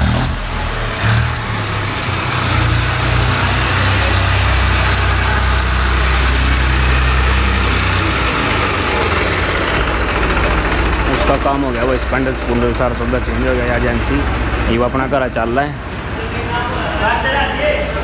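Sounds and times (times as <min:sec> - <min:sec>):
tractor diesel engine passing: 0:00.0 - 0:18.0.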